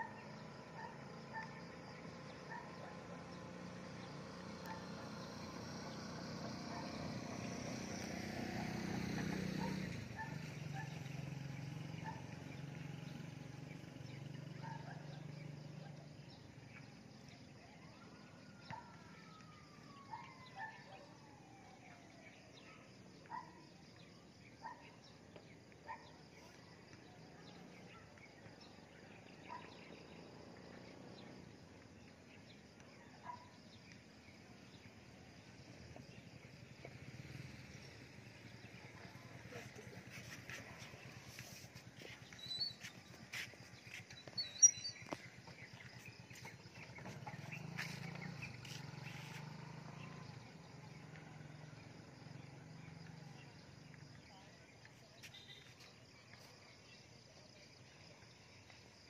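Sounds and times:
passing vehicle engine hum: 2.9 - 15.3, 45.0 - 54.1
birds chirping: 36.9 - 51.2.

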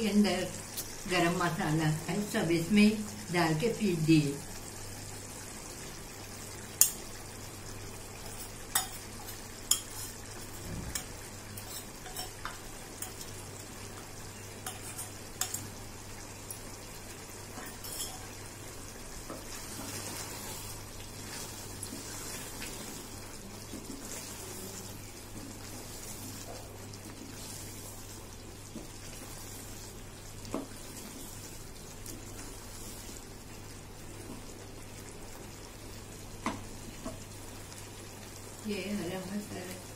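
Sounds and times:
frying sizzle: 0.0 - 39.9
wooden spoon stirring: 19.3 - 33.2.

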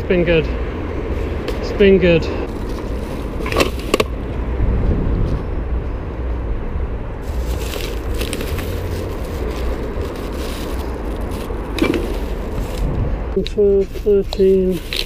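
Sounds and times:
steady low rumble: 0.0 - 15.0
plastic bags crinkling and rustling: 2.5 - 4.1, 7.2 - 12.9, 13.7 - 15.0.

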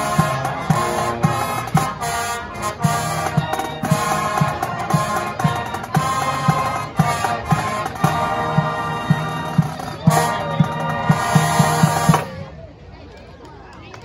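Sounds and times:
steady drum beat: 0.0 - 12.4
brass chords: 0.0 - 12.5.

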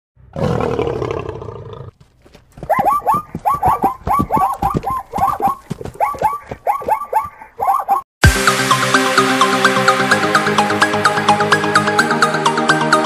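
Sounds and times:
big cat roaring: 0.3 - 1.9.

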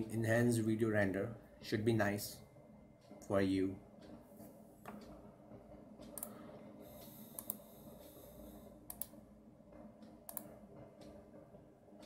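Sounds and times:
computer mouse clicks: 6.0 - 8.2, 8.9 - 9.2, 10.0 - 11.2.

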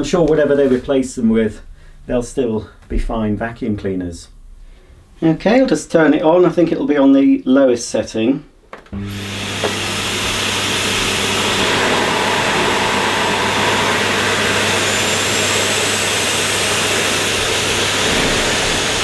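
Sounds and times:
vacuum cleaner running: 9.0 - 19.0.

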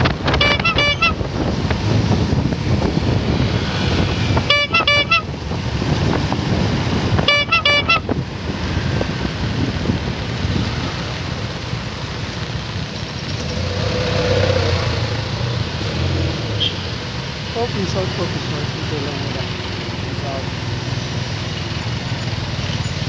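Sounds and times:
motorcycle engine: 0.0 - 23.0
traffic: 0.0 - 23.0
wind: 0.0 - 23.0
vehicle horn beeping: 0.3 - 1.3, 4.4 - 5.3, 7.2 - 8.1, 16.6 - 16.9.

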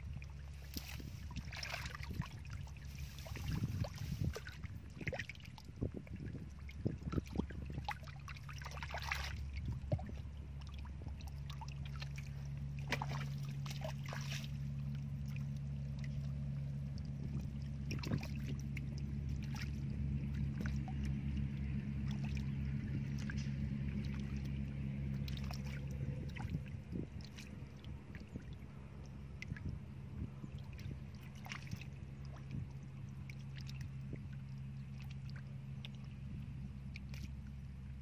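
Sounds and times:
low motor hum: 0.0 - 38.0
hands splashing in muddy water: 0.5 - 5.8, 6.6 - 16.4, 17.4 - 21.3, 30.6 - 36.2
hands brushing through dry grass: 2.8 - 4.4.

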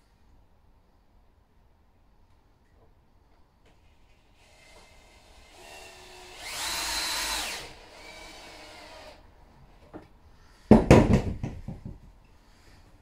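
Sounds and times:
cordless drill driving a screw: 4.4 - 9.2
loud knocks clattering: 10.7 - 12.1.

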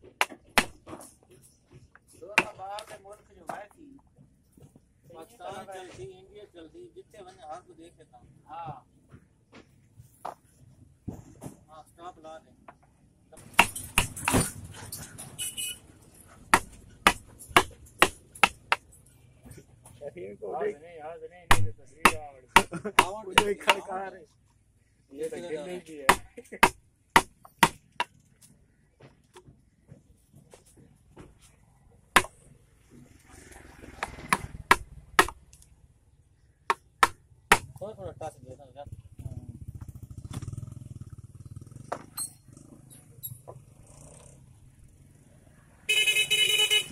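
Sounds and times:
hammer striking chisel in wood: 13.5 - 14.5, 21.5 - 23.8, 26.1 - 28.1, 34.3 - 35.4.

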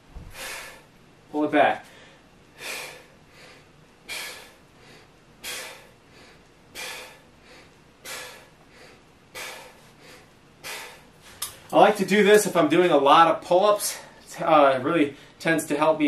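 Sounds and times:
man breathing hard: 0.2 - 1.0, 1.8 - 11.5.

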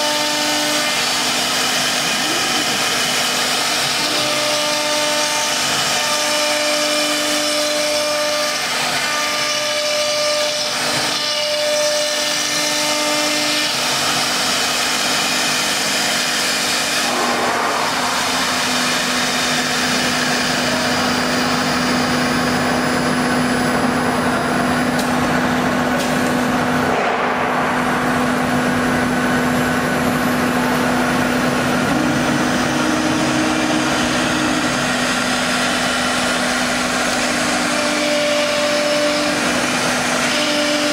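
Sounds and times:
rasp of router cutting wood: 0.0 - 23.0, 31.8 - 40.9
router spindle whine: 0.0 - 26.8, 28.1 - 40.9.

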